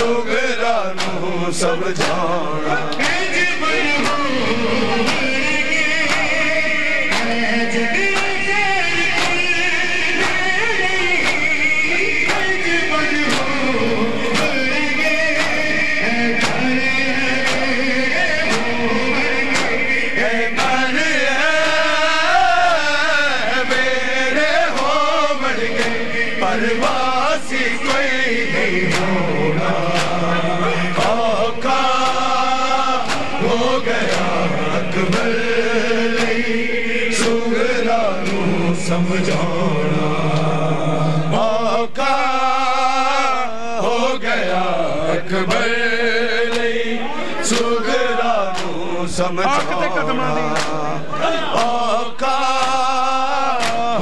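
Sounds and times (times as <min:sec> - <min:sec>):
men chanting: 0:00.0 - 0:54.0
hand slaps on chests: 0:01.0 - 0:01.2, 0:02.0 - 0:02.3, 0:02.9 - 0:03.3, 0:04.0 - 0:04.2, 0:05.0 - 0:05.4, 0:06.0 - 0:06.4, 0:07.1 - 0:07.4, 0:08.1 - 0:08.4, 0:09.1 - 0:09.5, 0:10.2 - 0:10.5, 0:11.2 - 0:11.6, 0:12.2 - 0:12.6, 0:13.3 - 0:13.6, 0:14.3 - 0:14.6, 0:15.3 - 0:15.6, 0:16.4 - 0:16.7, 0:17.4 - 0:17.8, 0:18.4 - 0:18.8, 0:19.4 - 0:19.9, 0:20.6 - 0:20.9, 0:24.7 - 0:26.0, 0:28.9 - 0:29.2, 0:29.8 - 0:30.3, 0:31.0 - 0:31.2, 0:32.0 - 0:32.3, 0:33.0 - 0:34.4, 0:36.1 - 0:36.5, 0:46.5 - 0:46.7, 0:48.5 - 0:48.8, 0:49.4 - 0:50.8, 0:51.5 - 0:51.8, 0:52.6 - 0:52.8, 0:53.6 - 0:53.9.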